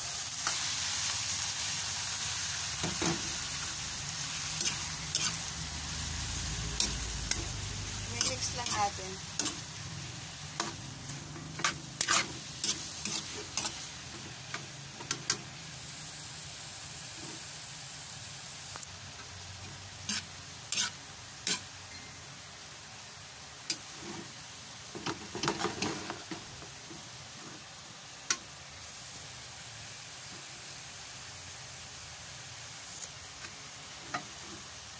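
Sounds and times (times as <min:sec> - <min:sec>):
stir-fry sizzling: 0:00.0 - 0:34.9
spatula scraping a pan: 0:02.8 - 0:05.5, 0:08.1 - 0:09.8, 0:10.6 - 0:15.4, 0:17.0 - 0:17.5, 0:20.0 - 0:22.2, 0:23.7 - 0:27.8, 0:33.9 - 0:34.8.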